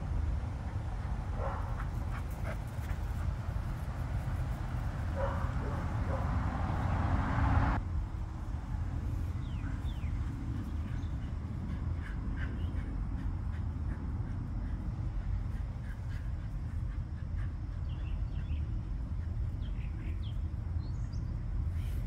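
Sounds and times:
steady low rumble: 0:00.0 - 0:22.0
dogs barking: 0:01.0 - 0:03.4, 0:05.0 - 0:06.9.

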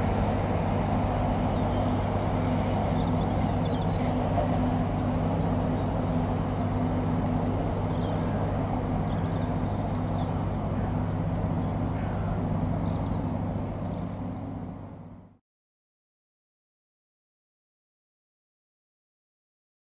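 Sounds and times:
diesel train engine drone: 0:00.0 - 0:15.4
low hum: 0:00.0 - 0:15.4.

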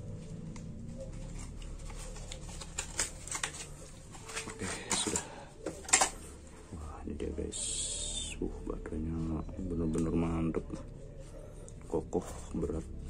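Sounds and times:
low steady hum: 0:00.0 - 0:13.0
packaging rustling: 0:00.1 - 0:06.6
plastic parts clicking: 0:02.5 - 0:06.2.

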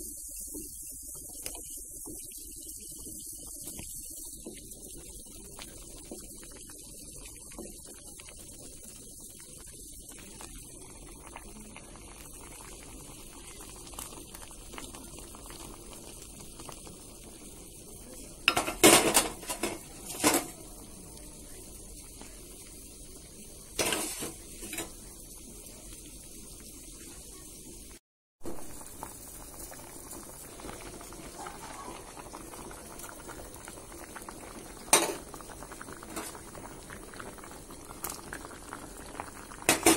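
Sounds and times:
broth bubbling in a pot: 0:00.0 - 0:39.9.

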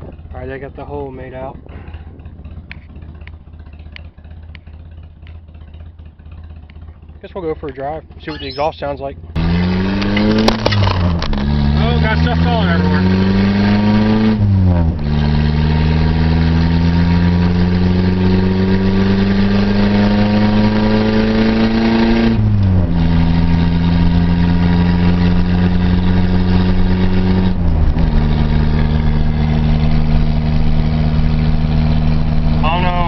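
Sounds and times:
car engine accelerating through gears: 0:09.3 - 0:33.0.

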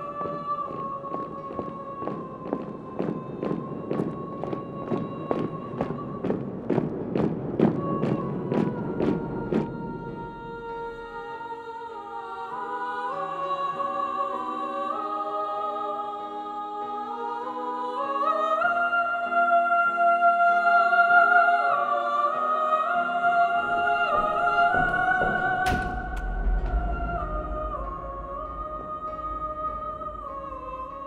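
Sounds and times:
girls' choir singing: 0:00.0 - 0:31.0
low rumble: 0:24.7 - 0:31.0.

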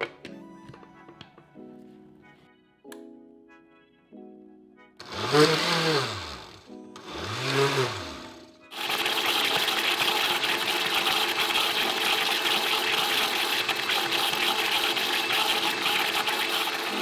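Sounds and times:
blender running at high speed: 0:05.0 - 0:17.0.

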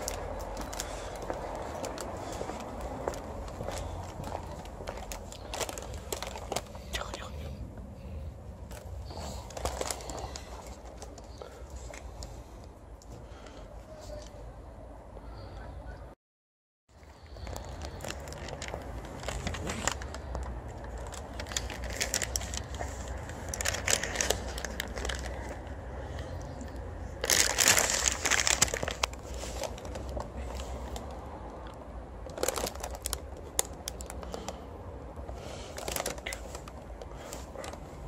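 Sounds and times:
bag crinkling: 0:00.0 - 0:06.8, 0:08.7 - 0:11.5, 0:17.2 - 0:25.7, 0:27.2 - 0:30.2, 0:32.3 - 0:34.6, 0:35.7 - 0:37.8.

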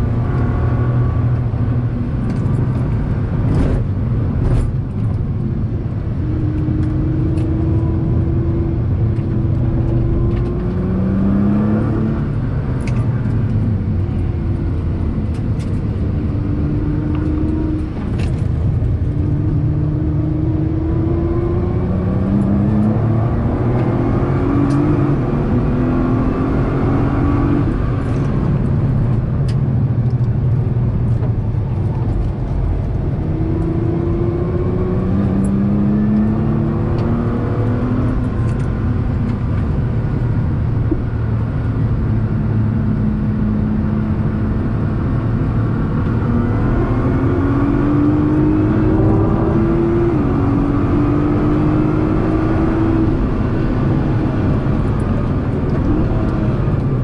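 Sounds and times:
heavy low rumble: 0:00.0 - 0:36.7
car engine revving at speed: 0:00.0 - 0:57.0.

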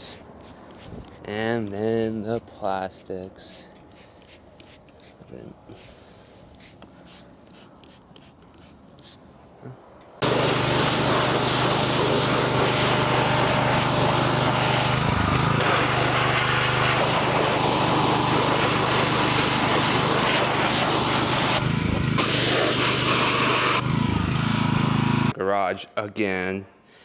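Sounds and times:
water jet hissing: 0:10.2 - 0:14.9, 0:15.6 - 0:21.6, 0:22.2 - 0:23.8
pressure washer motor hum: 0:10.2 - 0:25.3.

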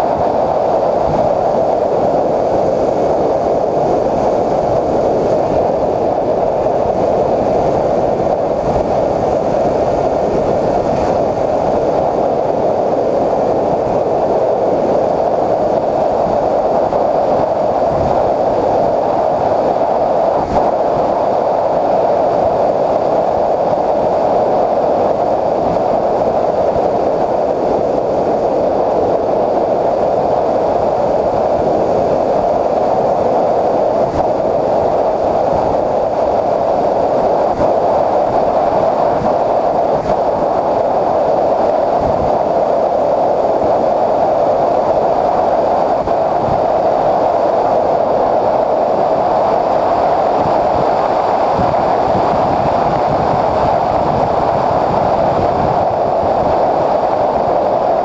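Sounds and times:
wind rushing: 0:00.0 - 0:58.0
propeller noise: 0:02.3 - 0:14.1.

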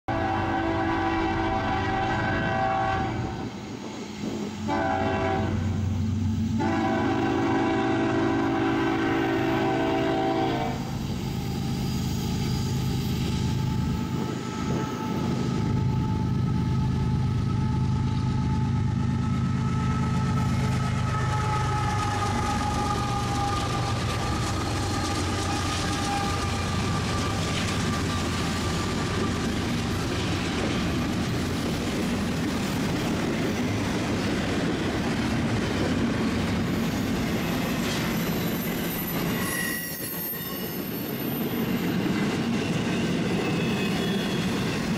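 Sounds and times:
two-tone locomotive horn: 0:00.1 - 0:03.5, 0:04.6 - 0:11.0, 0:19.6 - 0:28.0, 0:39.2 - 0:41.0
locomotive engines humming: 0:00.1 - 0:39.4
freight cars rolling on rails: 0:07.5 - 0:44.9.

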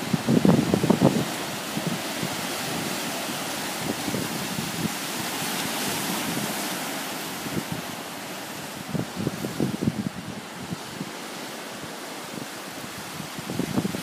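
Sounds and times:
waves washing over rocks: 0:00.0 - 0:14.0
wind gusts on microphone: 0:00.0 - 0:14.0.

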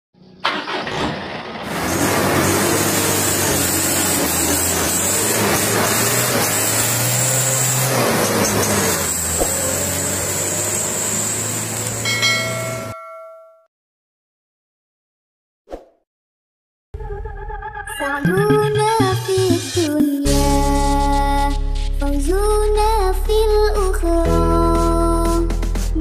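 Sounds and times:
heavy truck engine running: 0:00.4 - 0:12.7.

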